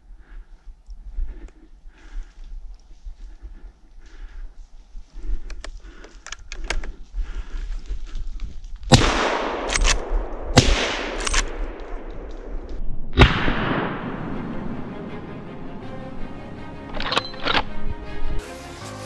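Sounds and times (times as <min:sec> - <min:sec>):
suppressed rifle shots echoing: 0:08.9 - 0:14.9.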